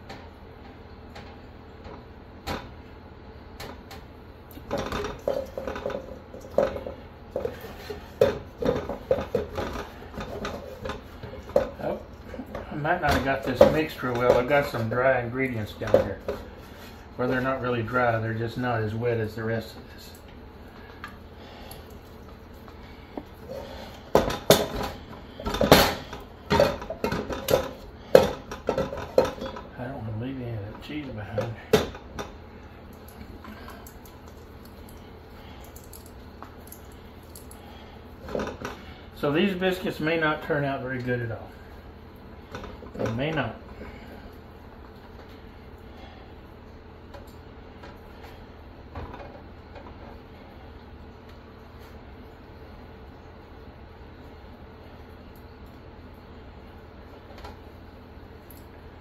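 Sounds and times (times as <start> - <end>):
steel mixing bowl clanking: 4.6 - 16.5.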